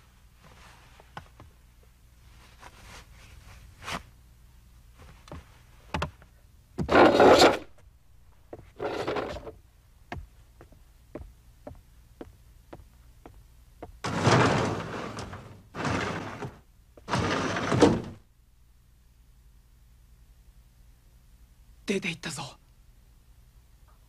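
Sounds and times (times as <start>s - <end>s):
chair scraping on floor: 6.8s - 7.7s, 8.7s - 9.6s, 14.0s - 18.2s.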